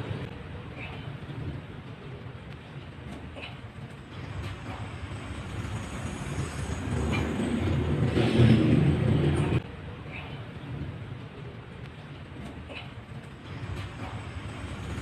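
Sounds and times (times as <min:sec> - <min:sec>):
low rumbling: 0:03.8 - 0:12.4.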